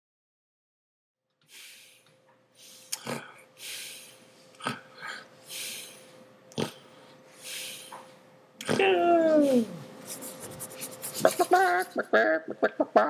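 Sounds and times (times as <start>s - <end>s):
steady hum: 1.5s - 13.0s.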